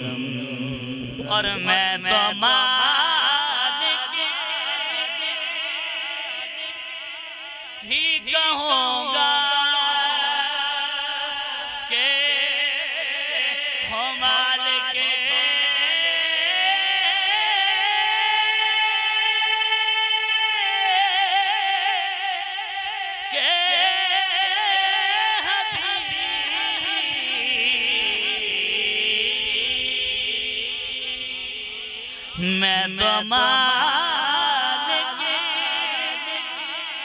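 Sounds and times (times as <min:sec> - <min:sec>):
man singing unaccompanied: 0:00.0 - 0:37.0.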